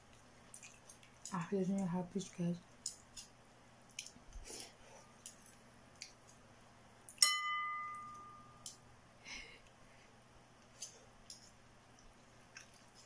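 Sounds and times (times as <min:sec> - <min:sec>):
eating noises: 0:00.0 - 0:03.2, 0:11.9 - 0:13.0
utensils clicking in a bowl: 0:00.5 - 0:04.2
utensil clinking on ceramic bowl: 0:07.2 - 0:08.8.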